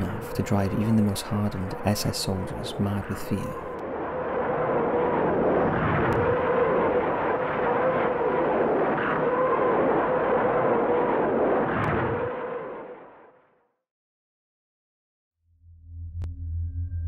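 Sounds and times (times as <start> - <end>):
rockets firing in a salvo: 0.0 - 13.4.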